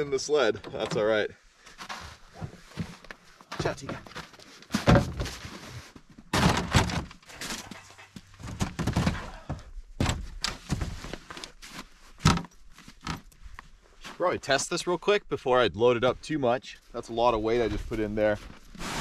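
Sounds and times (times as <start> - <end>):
hollow plastic thunks and knocks: 4.8 - 5.3, 6.3 - 7.1, 8.4 - 11.0.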